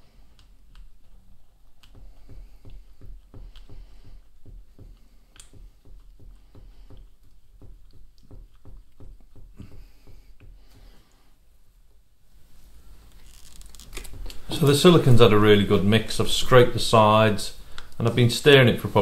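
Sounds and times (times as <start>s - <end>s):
wooden stick stirring silicone: 0.0s - 11.0s.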